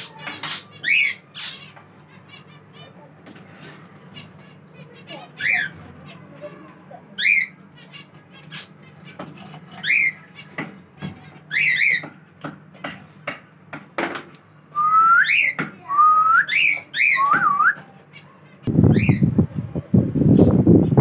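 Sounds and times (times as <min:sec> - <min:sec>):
small birds chirping: 0:00.0 - 0:21.0
cockatiel whistling: 0:14.8 - 0:17.8.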